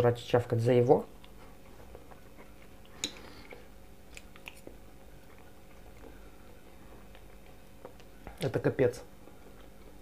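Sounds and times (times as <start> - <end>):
person chewing food: 1.1 - 8.5, 9.1 - 10.0
small wet mouth clicks: 2.8 - 6.1.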